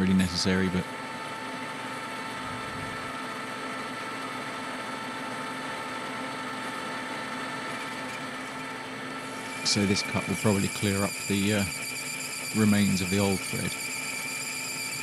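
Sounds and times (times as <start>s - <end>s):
lathe whining and humming: 0.0s - 15.0s
lathe tool cutting brass: 7.6s - 15.0s.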